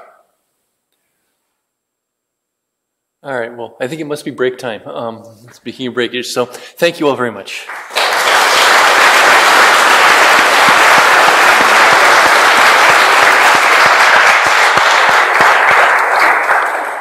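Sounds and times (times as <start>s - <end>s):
audience applauding: 7.6s - 17.0s.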